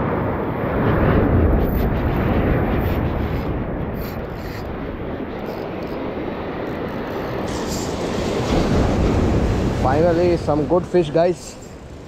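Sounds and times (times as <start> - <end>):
sea waves breaking on concrete: 2.8 - 11.9.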